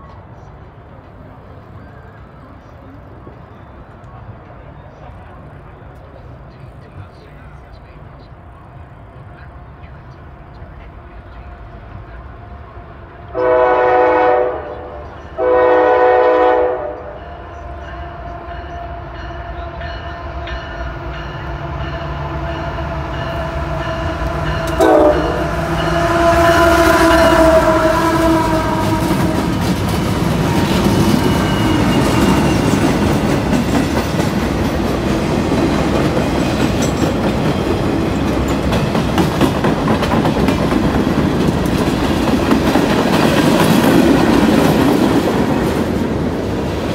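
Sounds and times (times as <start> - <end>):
diesel locomotives rumbling past: 0.0 - 46.9
locomotive horn blasts: 13.3 - 19.8, 22.6 - 29.6
train wheels clickety-clack: 26.8 - 46.9.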